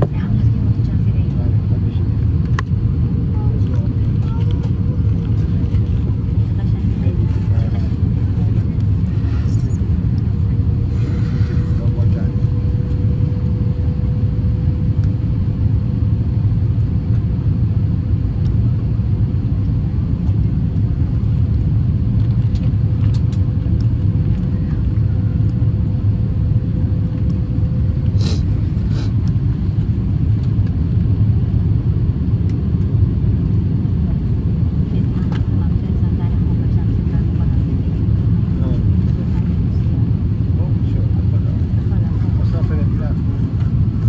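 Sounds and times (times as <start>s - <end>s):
faint steady whine: 0.0s - 33.8s
airliner cabin engine rumble: 0.0s - 44.0s.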